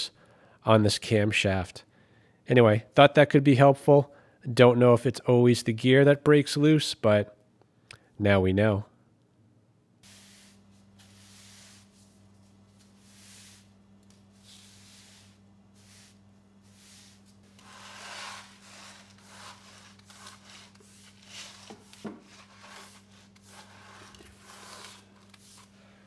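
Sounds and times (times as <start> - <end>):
low electrical hum: 0.0 - 26.0
brush sweeping concrete floor: 10.0 - 26.0.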